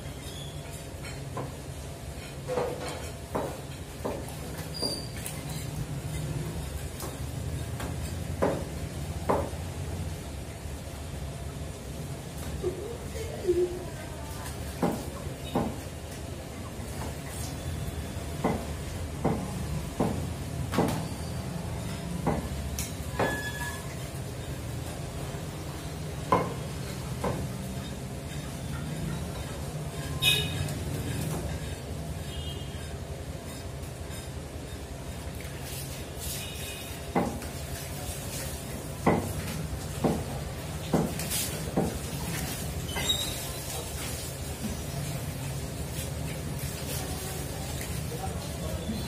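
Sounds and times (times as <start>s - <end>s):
meat cleaver chopping on wood: 39.0s - 40.3s.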